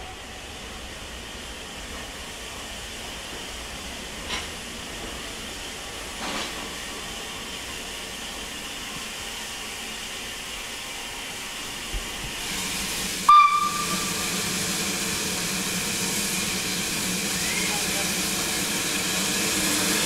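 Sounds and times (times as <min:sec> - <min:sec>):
steam hissing: 0:04.6 - 0:20.0
steam whistle blast: 0:13.3 - 0:14.4.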